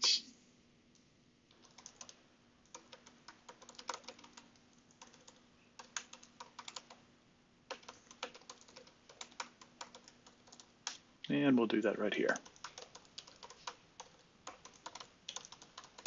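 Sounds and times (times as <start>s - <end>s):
faint steady hum: 0.0s - 16.0s
computer keyboard typing: 1.5s - 7.0s, 7.7s - 11.0s, 12.3s - 16.0s.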